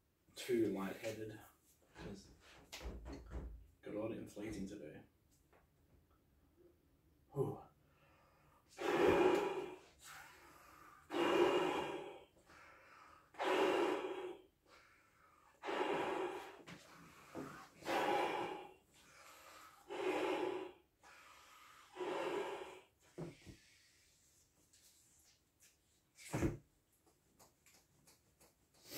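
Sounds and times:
faint breath sounds: 7.8 - 24.4
man blowing up a balloon: 8.7 - 23.0.

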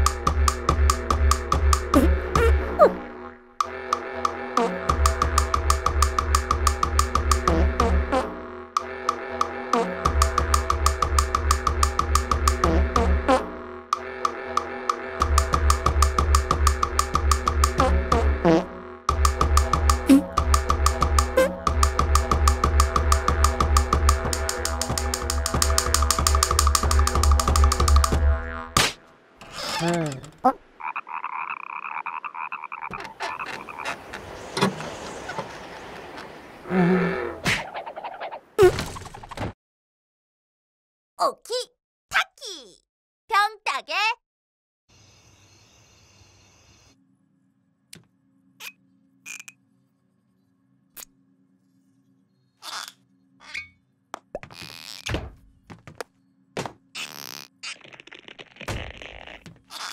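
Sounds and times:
cartoon frog croaking: 29.5 - 34.3, 52.6 - 53.7, 57.0 - 59.9
short knocks and thunks: 54.4 - 56.8.

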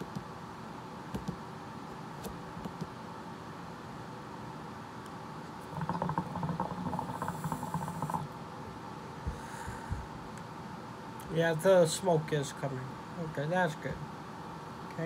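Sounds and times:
hookah water bubbling: 5.6 - 8.4
soft exhale: 9.3 - 10.1.

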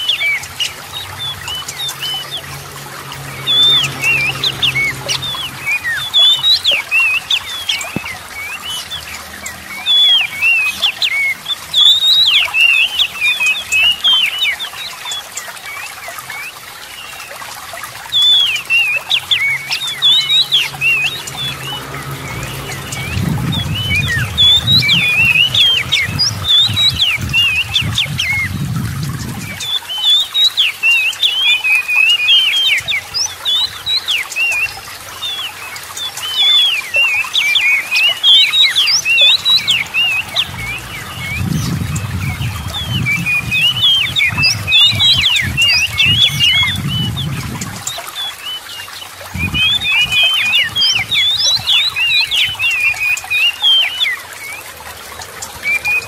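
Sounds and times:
trickling water: 0.0 - 56.0
bird singing whistles and chirps: 18.1 - 54.6.

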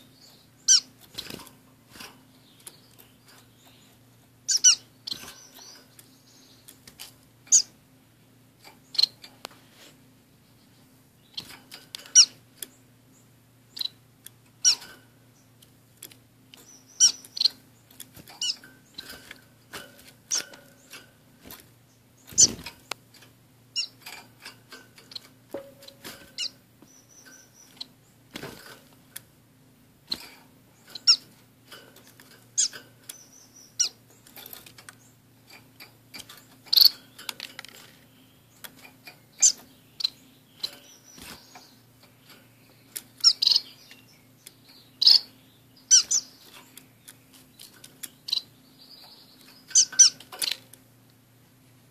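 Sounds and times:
finches chirping: 0.0 - 1.5, 2.2 - 6.8, 7.5 - 7.8, 8.7 - 9.2, 10.4 - 15.6, 16.6 - 19.5, 20.1 - 21.2, 21.9 - 23.0, 23.7 - 28.3, 30.1 - 31.4, 32.0 - 50.8.

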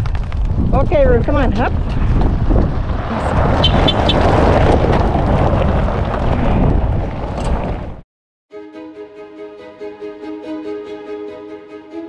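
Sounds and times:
wind buffeting microphone: 0.0 - 8.0.

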